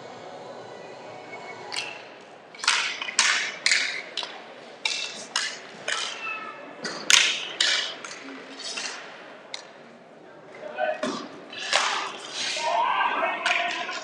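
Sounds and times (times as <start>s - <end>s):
skates scraping floor: 1.7s - 9.8s, 10.5s - 14.0s
hockey sticks striking ball: 1.8s - 9.8s, 11.0s - 14.0s.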